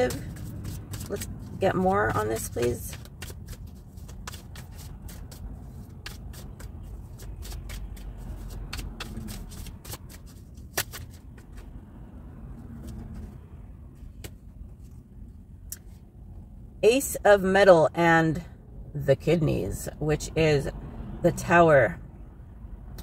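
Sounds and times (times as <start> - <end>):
cards shuffling: 0.0 - 11.8
low steady rumble: 0.0 - 23.0.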